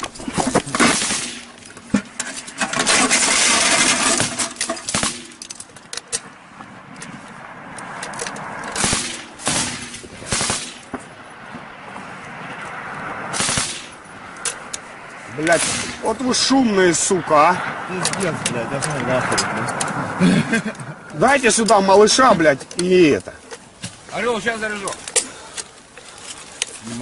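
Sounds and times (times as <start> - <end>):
machine-gun fire: 8.8 - 10.9, 13.3 - 13.9.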